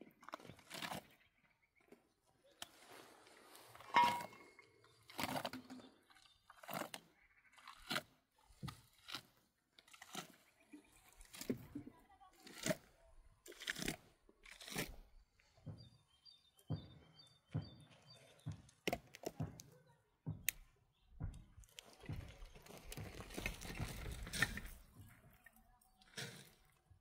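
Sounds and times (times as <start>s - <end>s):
mud being scooped and scraped: 0.0s - 1.3s, 2.5s - 7.0s, 7.6s - 15.2s, 21.6s - 27.0s.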